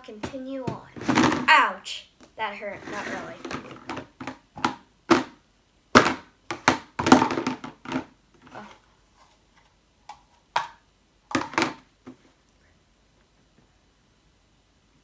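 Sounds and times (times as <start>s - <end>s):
plastic tub knocking on table: 0.2s - 1.5s, 3.4s - 5.4s, 6.0s - 8.1s, 10.6s - 11.8s.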